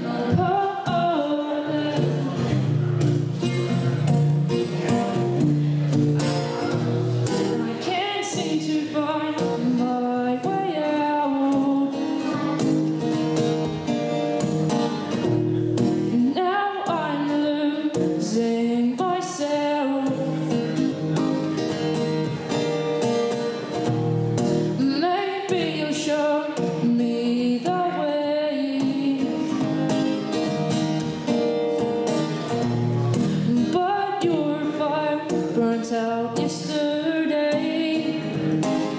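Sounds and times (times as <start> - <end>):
woman singing: 0.0 - 2.5, 7.6 - 12.7, 16.1 - 20.7, 24.7 - 30.0, 33.2 - 38.9
acoustic guitar strumming: 0.0 - 38.9.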